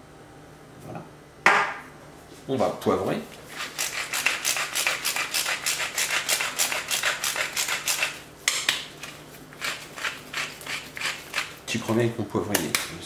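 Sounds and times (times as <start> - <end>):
pepper mill grinding: 3.5 - 8.2, 9.0 - 11.7.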